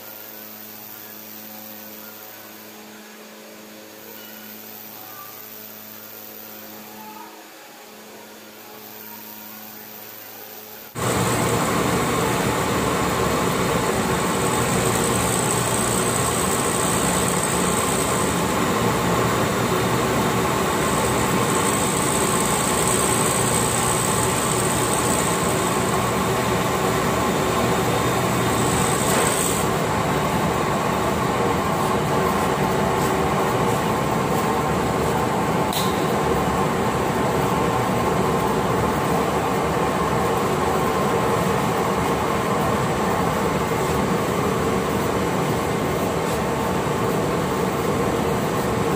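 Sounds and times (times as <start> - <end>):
machinery humming: 10.6 - 48.9
high whine: 11.0 - 48.8.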